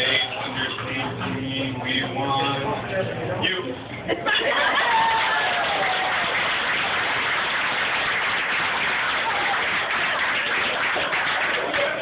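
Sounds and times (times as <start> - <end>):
crowd clapping: 4.7 - 12.0.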